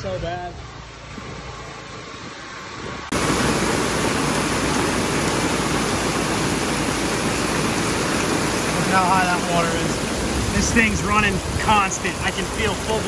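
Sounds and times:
heavy rain pouring: 3.1 - 13.0.

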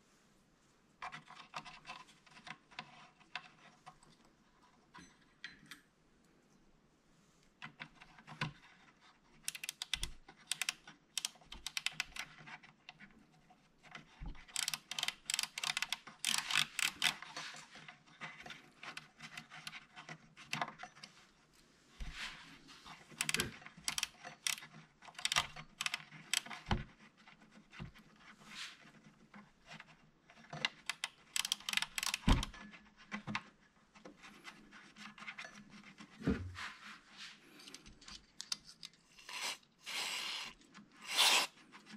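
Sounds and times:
fingers clicking and scratching: 7.7 - 21.0, 23.0 - 28.3, 28.9 - 36.1, 37.6 - 41.9.

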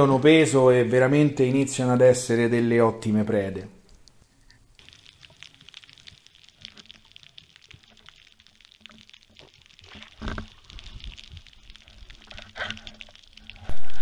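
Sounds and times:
faint underwater clicks crackling: 3.8 - 13.9.

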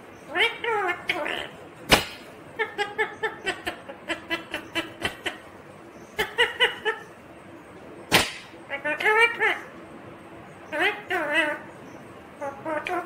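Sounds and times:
sharp knock: 1.9 - 2.2, 8.1 - 8.5.

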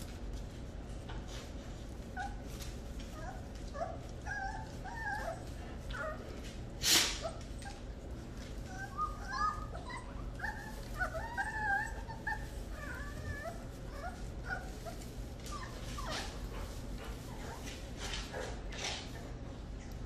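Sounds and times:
steady low hum: 0.0 - 20.0
puppies whining and yipping: 2.0 - 6.4, 7.2 - 17.8.

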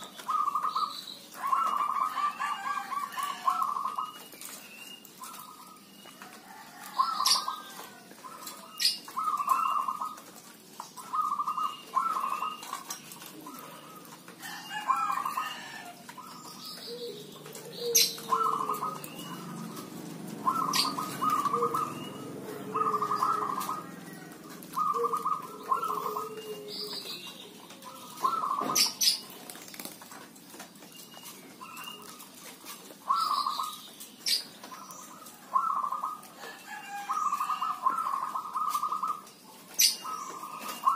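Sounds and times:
doves cooing: 0.0 - 40.9.

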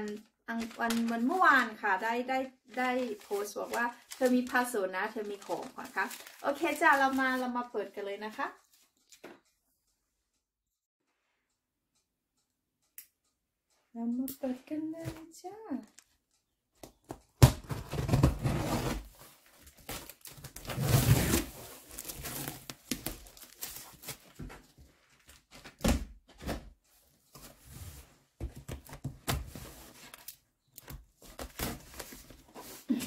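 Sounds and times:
packing tape ripping off cardboard: 17.4 - 24.4, 31.3 - 33.0.

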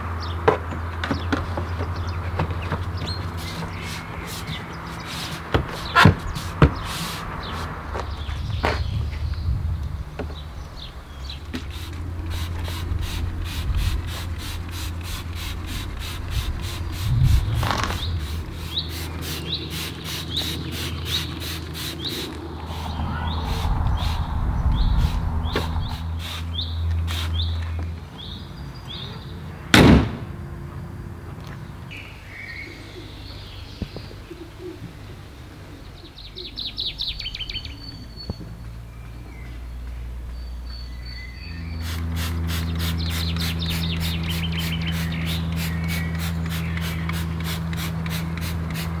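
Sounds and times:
birds chirping: 0.0 - 29.7, 31.5 - 48.8
spray bottle squirting: 3.3 - 7.8, 11.6 - 22.9, 25.0 - 26.5, 27.1 - 27.5, 41.8 - 49.0
steady low hum: 8.3 - 28.6.

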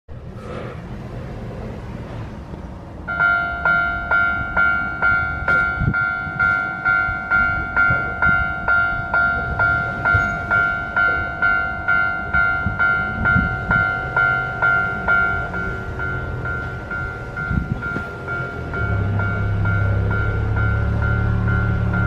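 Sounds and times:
light street background: 0.1 - 22.0
level crossing warning bell: 3.0 - 22.0.

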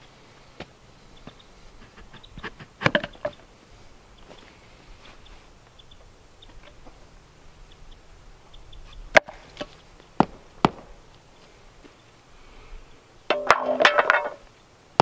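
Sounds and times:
faint ticks and rustles: 0.0 - 9.0.

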